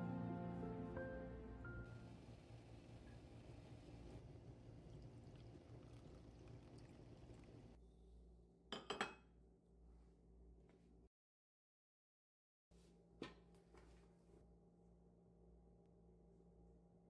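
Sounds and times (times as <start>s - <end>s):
water poured into cup: 4.3s - 7.8s
cup clinking on saucer: 8.7s - 9.3s.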